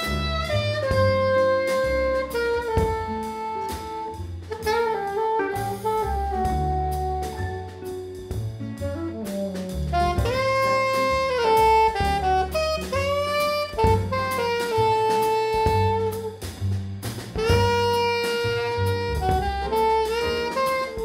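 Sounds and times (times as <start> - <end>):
saxophone melody: 0.0 - 16.4, 17.4 - 21.0
drums with cymbals: 0.0 - 21.0
piano: 0.0 - 21.0
walking double bass: 0.0 - 21.0.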